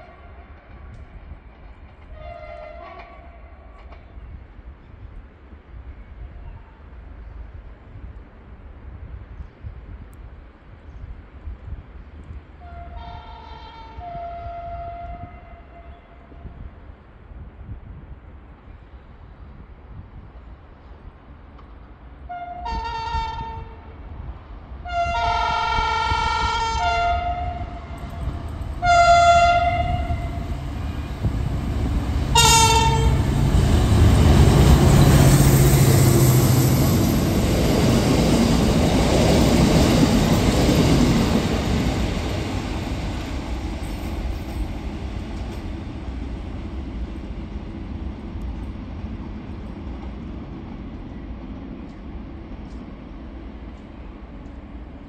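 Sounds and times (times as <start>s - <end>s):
train passing with rumble: 0.0s - 55.0s
locomotive horn blasts: 22.3s - 23.8s, 24.9s - 28.2s, 28.8s - 31.2s, 32.3s - 33.4s.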